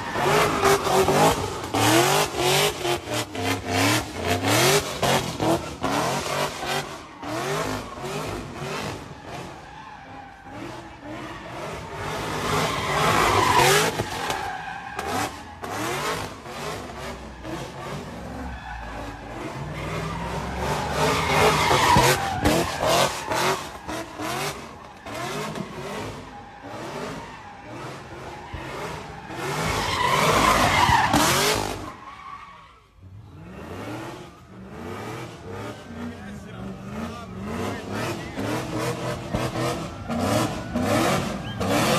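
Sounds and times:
engine revving: 33.3s - 41.9s.

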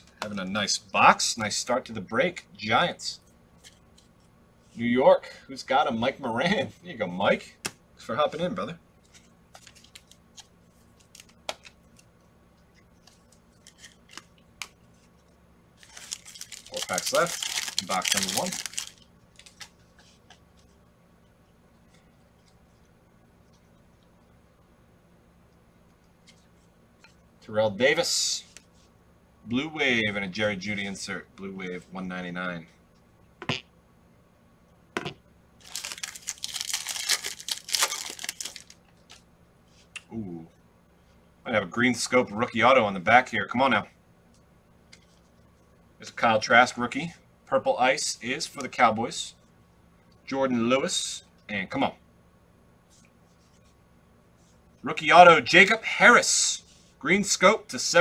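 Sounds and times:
trading cards being handled: 8.4s - 20.8s, 35.0s - 39.9s
card pack wrapper tearing: 15.8s - 19.7s, 35.6s - 38.8s.

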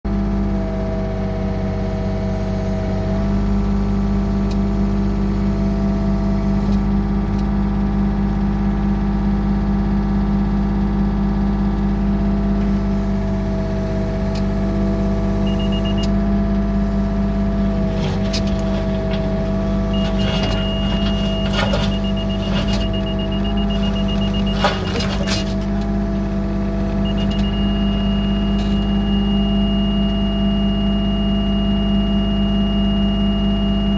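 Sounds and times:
excavator diesel engine running: 0.1s - 30.8s
bucket scraping through gravel: 17.9s - 22.9s, 24.4s - 25.8s
laser receiver beeping: 19.9s - 25.5s.

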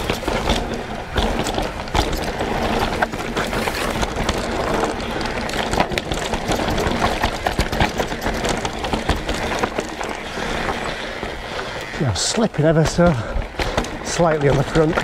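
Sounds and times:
bike knocks and rattles: 0.0s - 11.4s, 12.3s - 15.0s.

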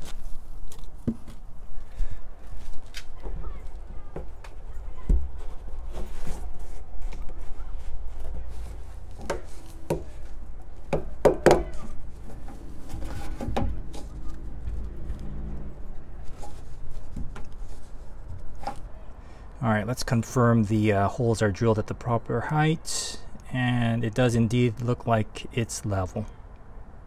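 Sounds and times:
plastic hose knocking and rubbing: 1.0s - 1.4s, 9.1s - 10.3s, 10.9s - 14.8s, 16.3s - 18.8s
low rumble: 12.0s - 16.3s.

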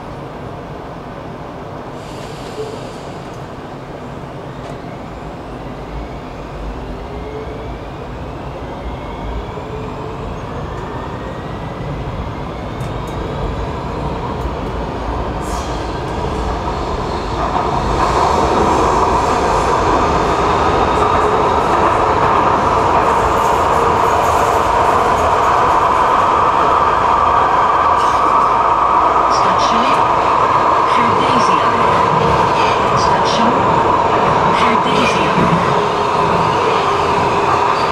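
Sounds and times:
train wheel and running noise: 10.3s - 37.9s.

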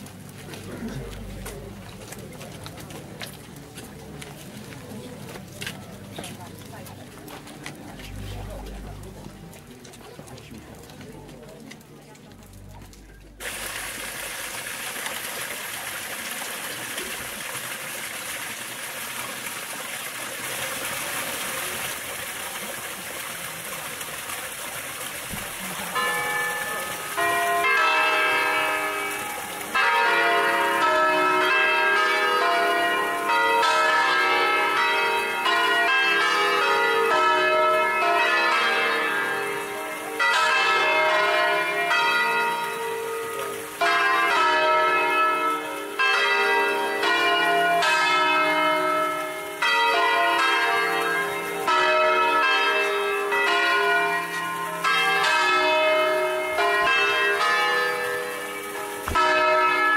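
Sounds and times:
church bells ringing: 25.6s - 59.9s.

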